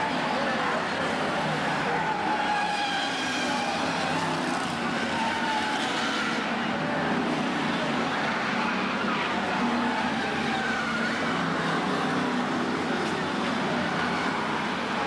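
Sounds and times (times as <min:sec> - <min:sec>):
race car engines passing: 0:00.0 - 0:15.0.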